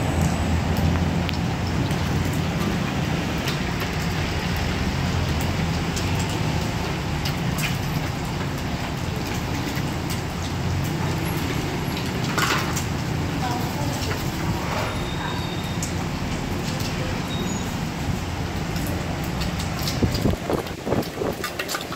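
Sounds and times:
oil sizzling: 0:00.0 - 0:21.9
stove fire roaring: 0:00.0 - 0:21.9.

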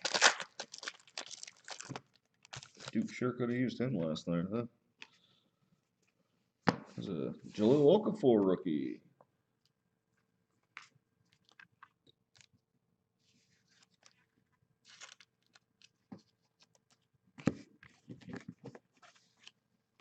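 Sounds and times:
trading cards rustling and clicking: 0:14.9 - 0:19.6.

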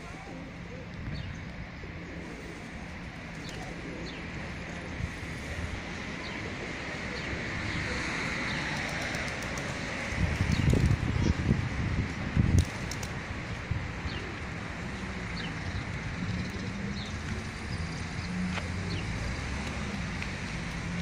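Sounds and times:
distant traffic hum: 0:00.0 - 0:21.0
wind rumbling on microphone: 0:04.6 - 0:21.0.

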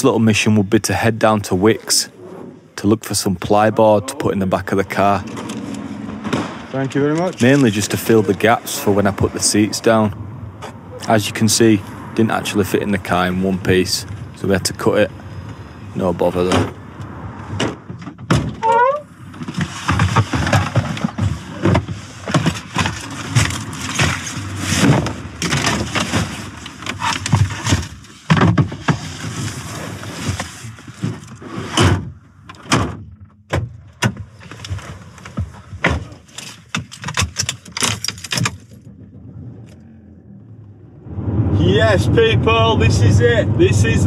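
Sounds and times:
gear knocking and thudding: 0:19.2 - 0:29.0.

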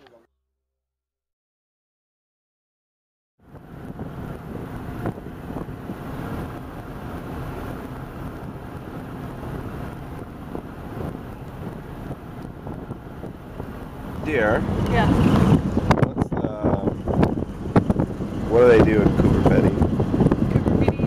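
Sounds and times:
wind buffeting microphone: 0:03.4 - 0:21.0.

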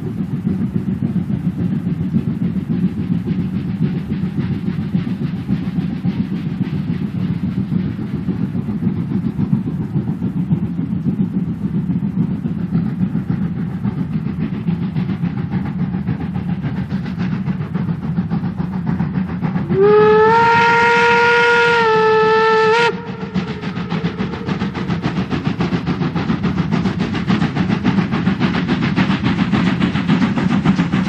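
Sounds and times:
steam locomotive chuffing: 0:00.0 - 0:31.0
steam whistle: 0:19.7 - 0:23.4.

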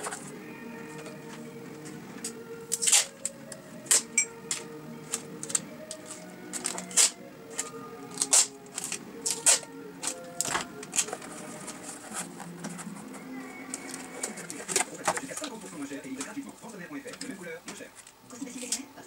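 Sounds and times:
scissors cutting tape: 0:02.2 - 0:11.2
packing tape tearing off roll: 0:02.2 - 0:13.0
cardboard rustling: 0:05.1 - 0:18.2.

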